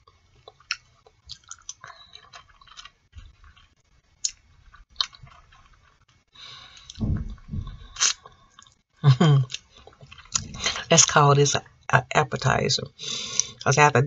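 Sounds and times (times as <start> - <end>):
chewing with wet clicks and smacks: 0.0 - 7.0, 9.4 - 10.8.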